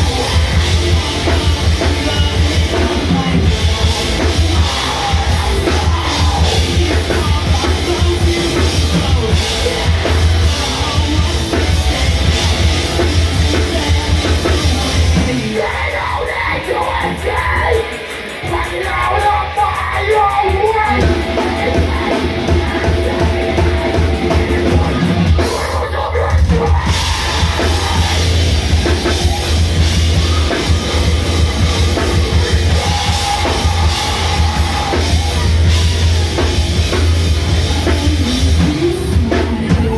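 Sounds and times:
distorted electric guitar: 0.0s - 39.9s
drum kit: 0.0s - 39.9s
heavy rock band playing: 0.0s - 39.9s
shouted vocals: 13.4s - 39.9s.

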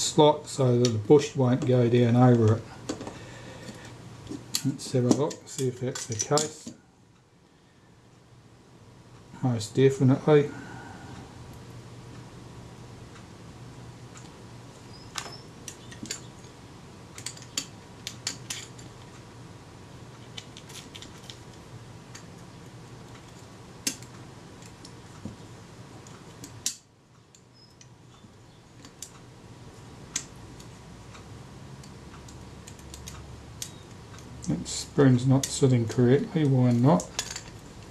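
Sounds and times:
tweezers clicking on metal parts: 23.2s - 25.0s, 31.8s - 37.6s.

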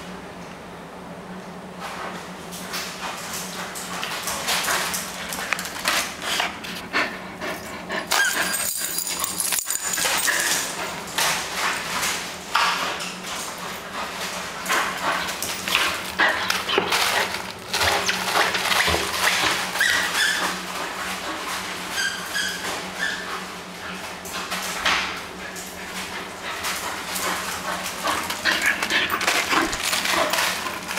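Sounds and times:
paws clicking on tiled floor: 1.9s - 30.9s
dog whining: 8.0s - 9.0s, 19.7s - 20.7s.

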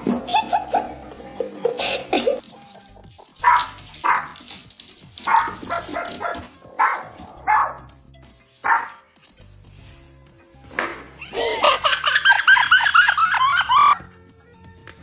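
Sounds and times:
dog barking: 3.4s - 4.4s, 5.2s - 7.9s, 8.6s - 9.0s.

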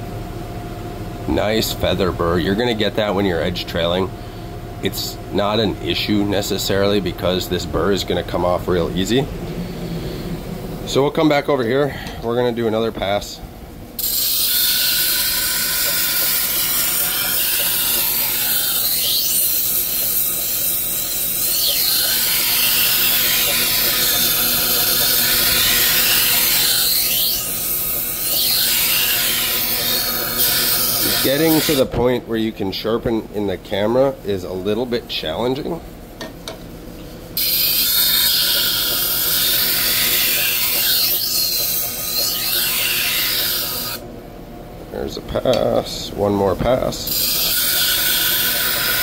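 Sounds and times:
knife grinding on wet wheel: 14.0s - 31.9s, 37.4s - 44.0s, 47.1s - 49.0s
grinder motor hum: 14.0s - 32.0s, 37.4s - 44.0s, 45.4s - 49.0s.

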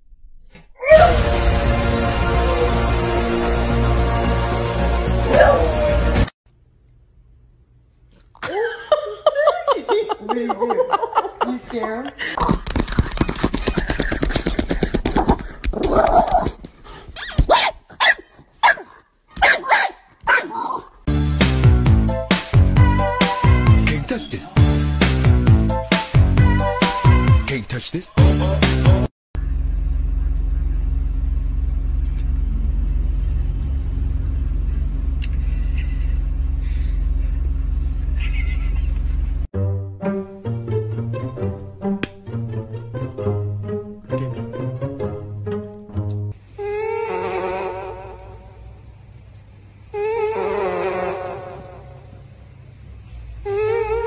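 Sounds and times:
dog yipping and barking: 17.2s - 20.9s
plucked string music: 39.6s - 46.4s.

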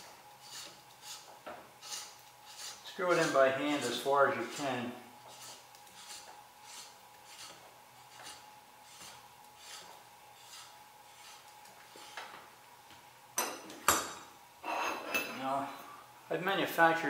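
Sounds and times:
soft rubbing strokes: 0.0s - 12.3s.

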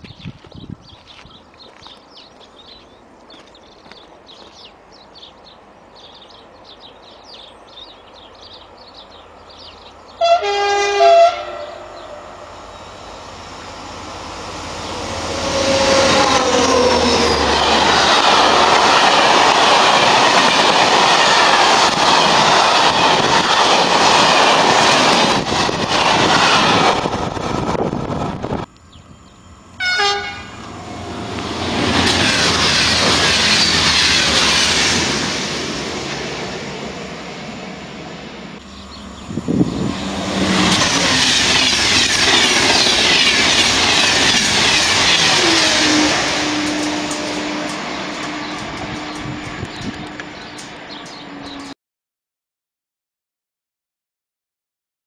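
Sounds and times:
train passing with clattering wheels: 0.0s - 51.8s
train horn: 10.2s - 12.8s, 14.9s - 17.6s, 29.8s - 31.3s, 45.1s - 50.2s
faint high chirping: 28.7s - 29.8s.

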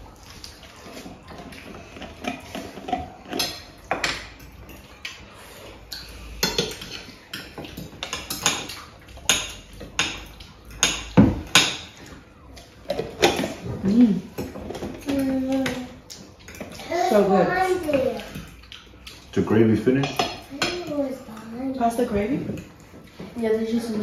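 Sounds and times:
cutlery clinking on plates: 5.8s - 12.2s, 19.9s - 20.9s.

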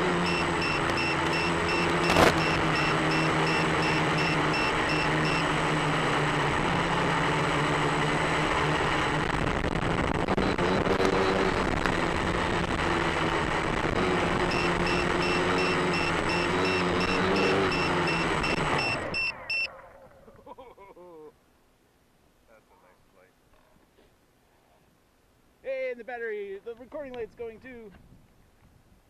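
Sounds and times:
low-battery alarm beeping: 0.0s - 5.7s, 14.4s - 19.7s
electric motor and propeller running: 0.0s - 19.7s.

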